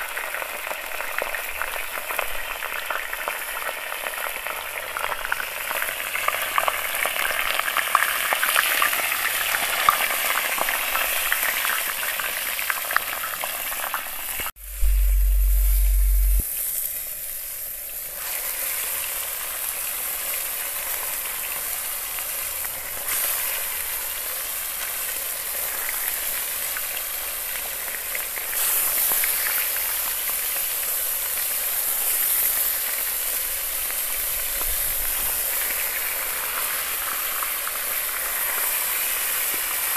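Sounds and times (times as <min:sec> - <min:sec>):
meat sizzling on a griddle: 0:00.0 - 0:14.5, 0:16.5 - 0:39.9
low hum: 0:14.6 - 0:16.4.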